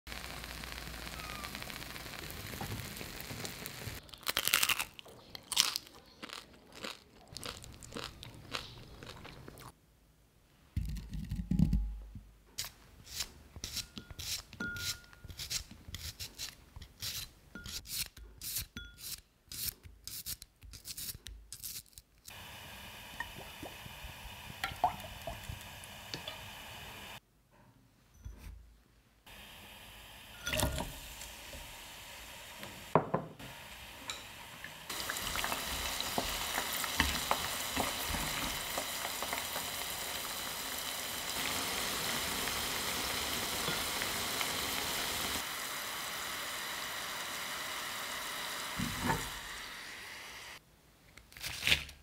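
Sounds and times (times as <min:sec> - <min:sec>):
steady hiss: 0:00.1 - 0:04.0, 0:22.3 - 0:27.2, 0:29.3 - 0:50.6.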